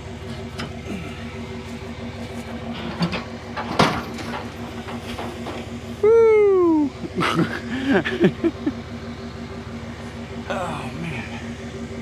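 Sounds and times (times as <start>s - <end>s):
metal knocks and clanks: 2.5s - 5.8s.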